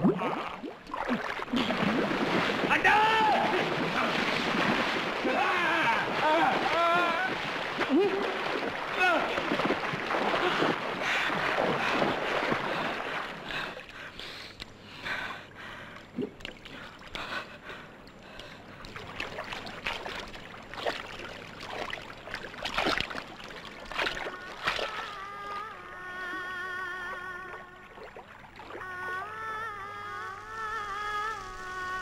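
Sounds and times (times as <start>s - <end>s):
stream water rushing and splashing: 0.8s - 13.5s.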